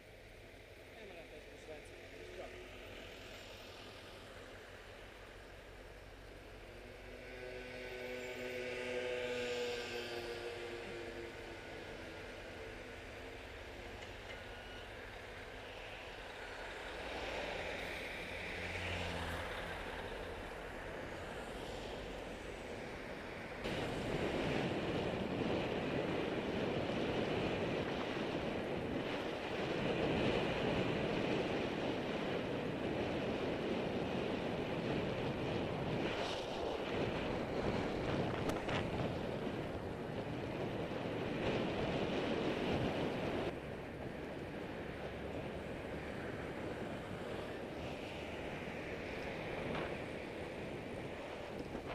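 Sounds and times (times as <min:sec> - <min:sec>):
tyres rumbling on asphalt: 0:00.6 - 0:51.9
wind rushing over microphone: 0:15.2 - 0:51.9.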